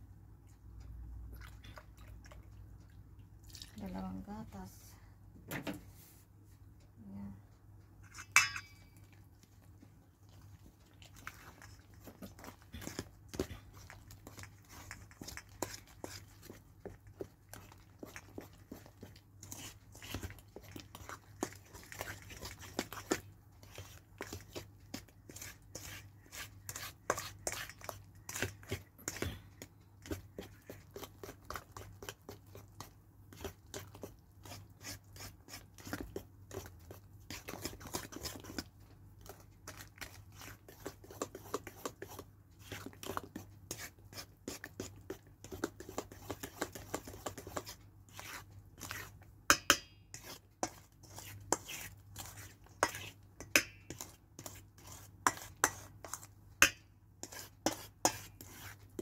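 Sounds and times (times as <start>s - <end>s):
wet batter stirring: 0.0s - 4.8s, 7.6s - 59.0s
fork clicking and scraping metal bowl: 8.0s - 9.2s, 11.0s - 29.4s, 30.0s - 59.0s
fork knocking against bowl: 8.1s - 9.0s, 49.5s - 50.0s.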